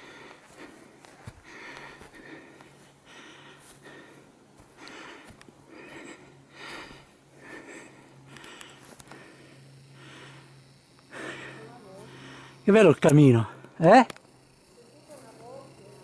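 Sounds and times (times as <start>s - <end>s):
person breathing: 0.0s - 12.7s
light clicks: 8.3s - 9.2s.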